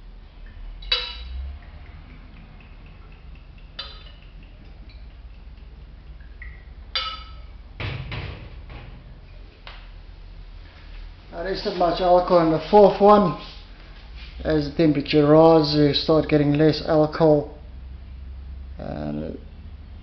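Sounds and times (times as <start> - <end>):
glass bottle clinking: 0.8 - 1.4, 3.0 - 5.1, 6.4 - 7.6.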